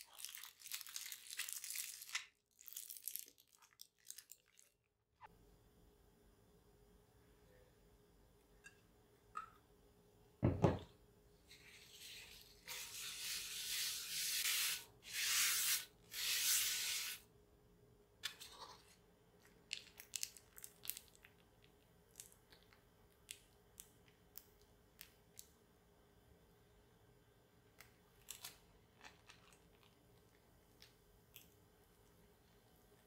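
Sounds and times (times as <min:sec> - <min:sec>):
dull knock: 0:10.4 - 0:10.8
paper towel wiping frying pan: 0:11.5 - 0:17.2.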